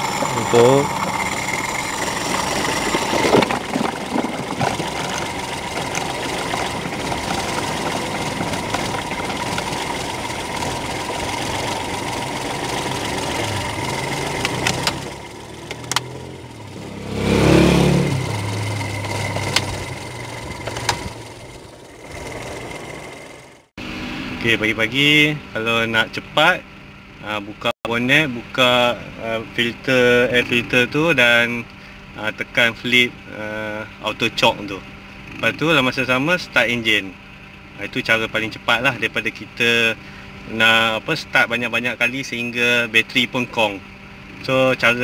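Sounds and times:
car engine idling: 0:00.0 - 0:23.7.

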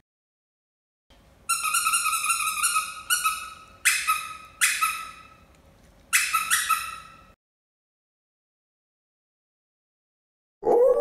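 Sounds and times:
squeaky toy squeaking: 0:01.5 - 0:05.4, 0:06.1 - 0:07.3.

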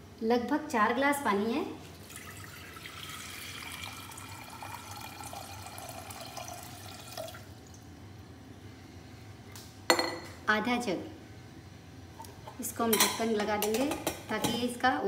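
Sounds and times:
water pouring into metal pot: 0:01.9 - 0:07.8.

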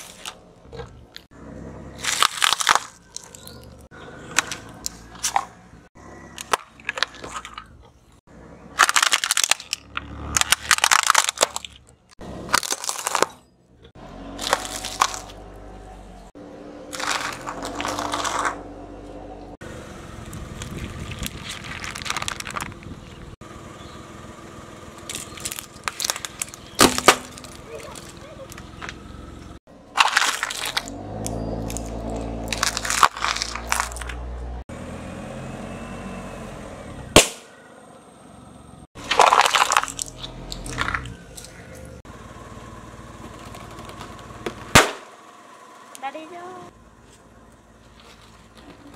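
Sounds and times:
tyre crushing objects crackling: 0:02.0 - 0:03.7, 0:08.8 - 0:11.8, 0:12.4 - 0:13.4, 0:14.3 - 0:15.5, 0:16.9 - 0:18.6, 0:20.3 - 0:23.3, 0:25.1 - 0:29.0, 0:29.9 - 0:34.6, 0:39.0 - 0:41.8
car engine humming low: 0:13.5 - 0:30.0, 0:30.6 - 0:39.1, 0:40.0 - 0:48.9.

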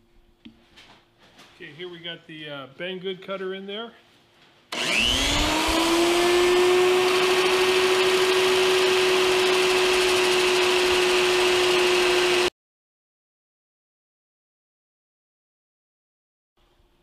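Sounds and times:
electric drill motor whining: 0:04.7 - 0:12.5.

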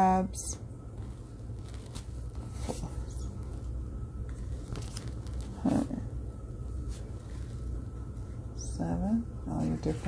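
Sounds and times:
steady low hum: 0:00.0 - 0:10.0
cards rustling and sliding: 0:01.6 - 0:02.9, 0:04.3 - 0:05.5.

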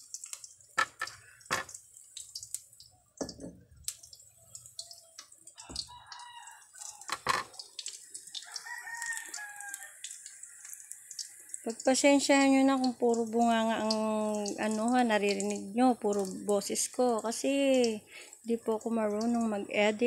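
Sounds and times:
sharp clicks and knocks: 0:00.8 - 0:01.8
rooster crowing: 0:05.6 - 0:07.3, 0:08.4 - 0:10.9.

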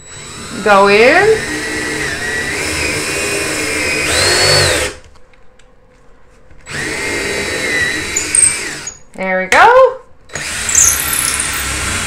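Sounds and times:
cordless drill boring wood: 0:00.0 - 0:05.0, 0:06.7 - 0:09.0, 0:10.3 - 0:12.0.

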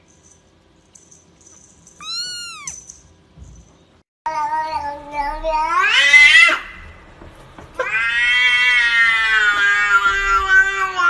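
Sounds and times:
cat meowing: 0:02.0 - 0:02.8.

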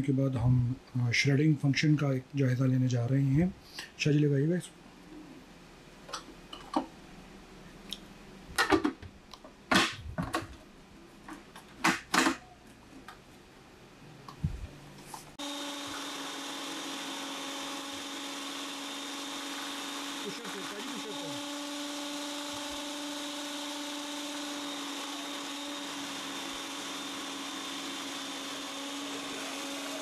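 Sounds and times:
food processor motor running: 0:15.4 - 0:30.0.

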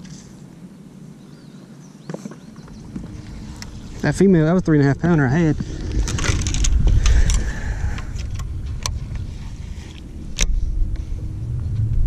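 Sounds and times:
wind rumbling on microphone: 0:02.4 - 0:12.0
fishing rod and reel clicking: 0:05.4 - 0:09.3.

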